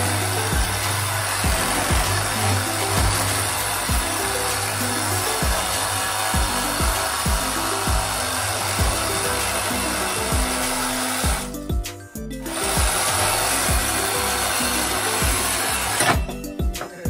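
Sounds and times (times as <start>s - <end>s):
reciprocating saw cutting metal: 0.0s - 11.6s, 12.4s - 17.0s
background music with beat: 0.0s - 17.0s.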